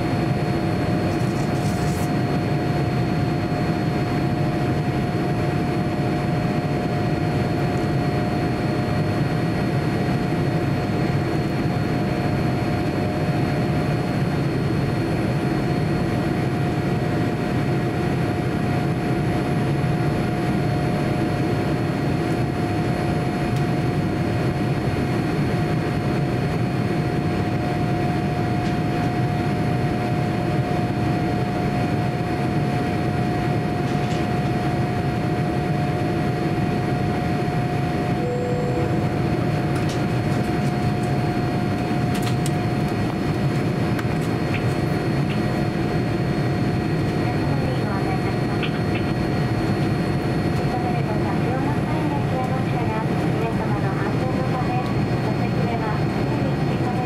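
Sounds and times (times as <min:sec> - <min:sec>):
airliner cabin engine noise: 0:00.0 - 0:57.0
faint high whine: 0:38.0 - 0:39.7.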